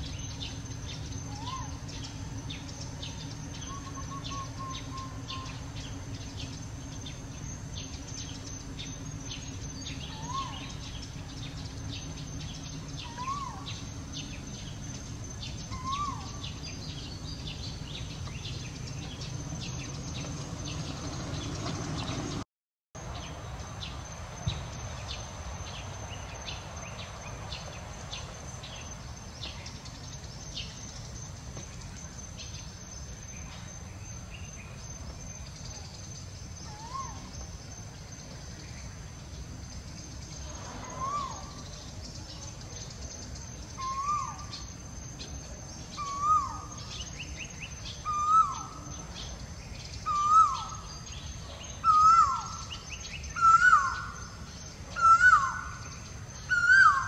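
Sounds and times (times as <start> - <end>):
high insect drone: 0.0 - 22.4, 23.0 - 57.0
low background rumble: 0.0 - 22.4.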